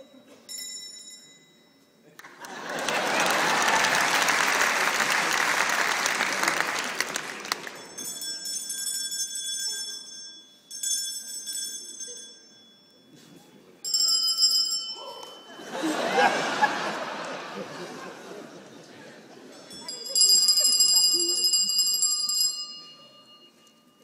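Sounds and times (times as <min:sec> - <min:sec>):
high thin bell ringing: 0:00.0 - 0:02.0, 0:07.8 - 0:15.6, 0:19.6 - 0:24.0
audience applause: 0:02.2 - 0:07.9.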